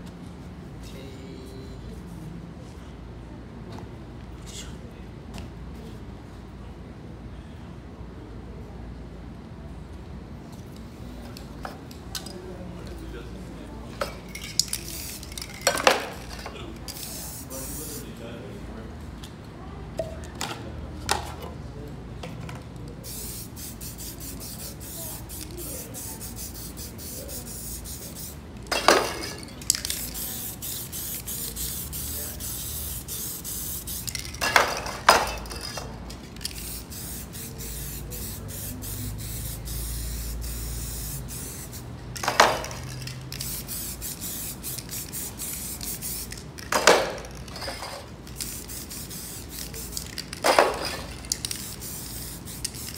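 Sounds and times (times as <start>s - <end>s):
spray paint cans hissing: 14.0s - 18.1s, 23.0s - 52.9s.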